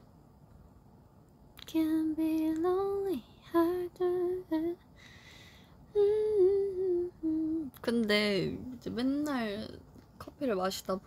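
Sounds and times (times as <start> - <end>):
woman humming: 5.9 - 8.8.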